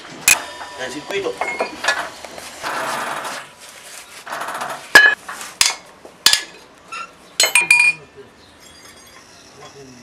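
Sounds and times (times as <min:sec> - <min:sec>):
sharp ringing metal knocks: 0:05.0 - 0:06.6.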